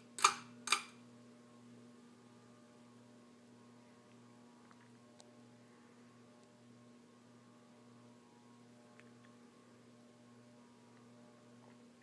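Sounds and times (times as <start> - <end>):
ceiling fan motor hum: 0.0 - 12.0.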